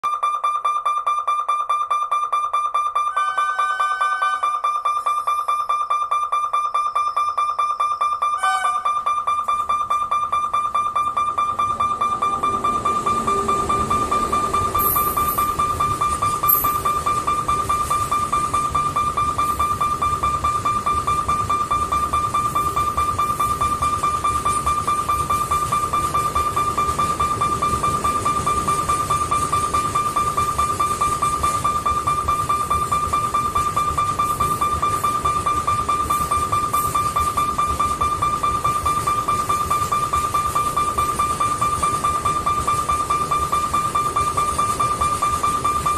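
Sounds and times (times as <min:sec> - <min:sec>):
crossing warning bell ringing: 0:00.0 - 0:45.9
freight train rumbling past: 0:11.6 - 0:16.4.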